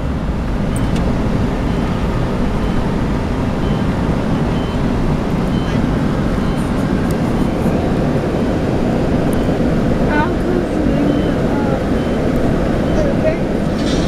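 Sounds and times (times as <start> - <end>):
car tyre and engine rumble: 0.0 - 14.0.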